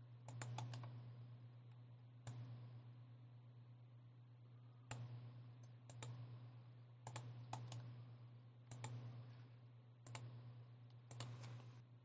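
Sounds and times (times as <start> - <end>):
low electrical hum: 0.0 - 12.0
computer mouse clicking: 0.2 - 1.0, 2.2 - 2.5, 4.9 - 6.2, 7.0 - 7.9, 8.7 - 9.1, 10.0 - 11.8.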